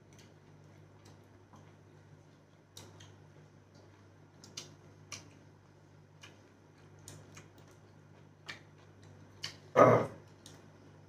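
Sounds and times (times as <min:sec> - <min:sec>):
chewing mouth clicks and smacks: 0:02.5 - 0:05.5, 0:06.2 - 0:10.7.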